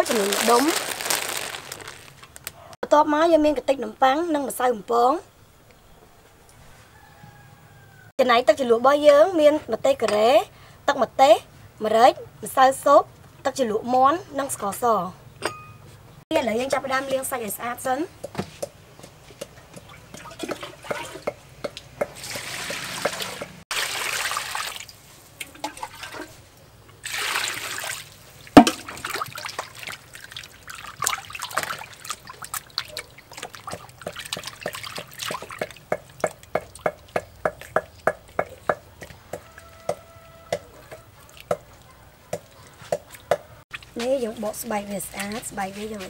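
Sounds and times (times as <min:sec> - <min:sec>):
water splashing in bowl: 0:22.1 - 0:26.4, 0:27.0 - 0:38.6, 0:40.9 - 0:44.0
sharp knock: 0:28.6 - 0:28.9.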